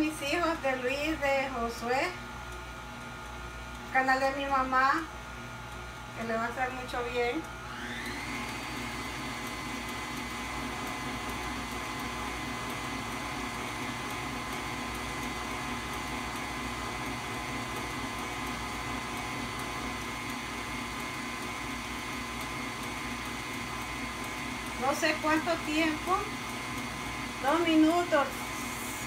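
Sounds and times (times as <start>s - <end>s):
stand mixer whining: 7.5s - 29.0s.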